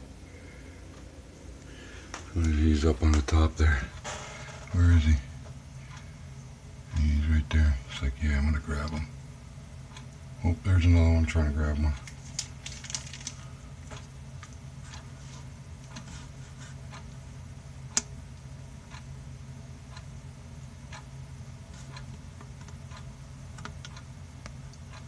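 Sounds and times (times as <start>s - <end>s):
steady low hum: 0.0s - 25.0s
faint ticks and clicks: 19.9s - 25.0s.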